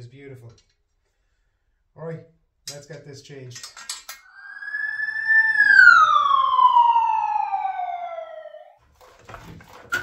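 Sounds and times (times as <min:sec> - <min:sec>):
descending whistle tone: 0:04.2 - 0:08.8.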